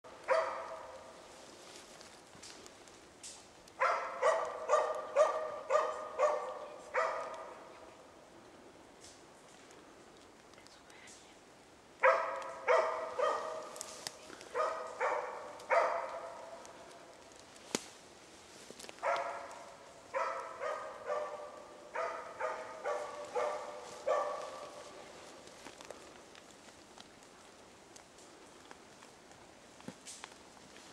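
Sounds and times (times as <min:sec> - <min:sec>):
dog barking with echo: 0:00.2 - 0:01.1, 0:03.8 - 0:07.7, 0:12.0 - 0:13.8, 0:14.5 - 0:16.6, 0:19.0 - 0:24.9.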